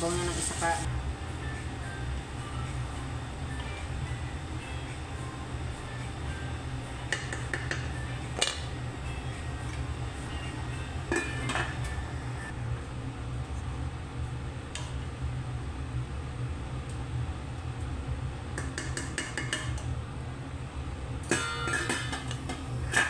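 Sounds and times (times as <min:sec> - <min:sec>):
steady low hum: 0:00.0 - 0:23.0
pot lid clinking: 0:11.1 - 0:11.8, 0:21.3 - 0:23.0.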